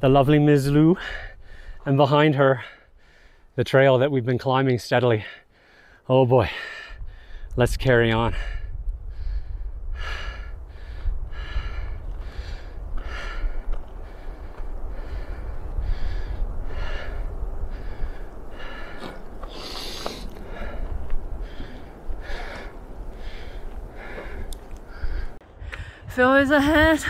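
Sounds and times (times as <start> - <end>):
person breathing hard: 1.0 - 1.8, 2.6 - 3.5, 5.4 - 7.5, 8.3 - 26.1
wind rumble on microphone: 6.8 - 27.0.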